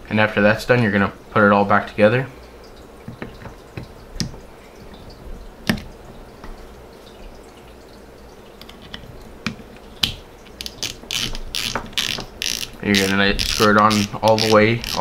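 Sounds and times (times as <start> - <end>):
fishing reel parts clicking: 10.6 - 15.0.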